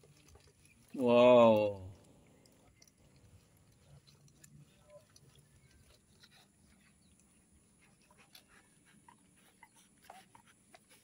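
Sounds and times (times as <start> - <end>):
puppies squeaking: 5.3 - 11.0.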